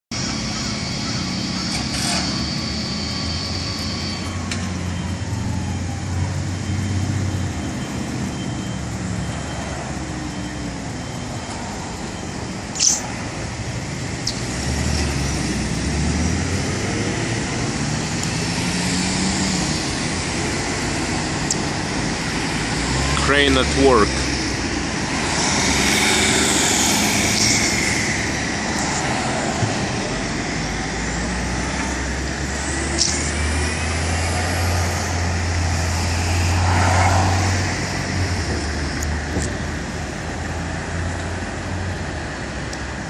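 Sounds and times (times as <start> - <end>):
passing cars: 0.1 - 43.0
bus engine running: 0.2 - 36.7
short sharp click: 12.8 - 13.0.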